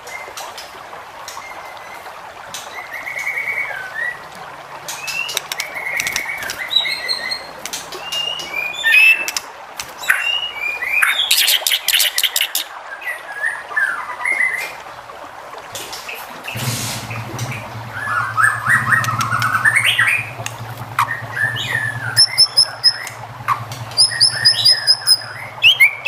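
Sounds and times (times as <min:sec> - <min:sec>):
bird trills and clicks: 0:04.8 - 0:12.7, 0:17.1 - 0:26.0
bird singing whistled phrases: 0:05.0 - 0:09.4, 0:21.0 - 0:26.0.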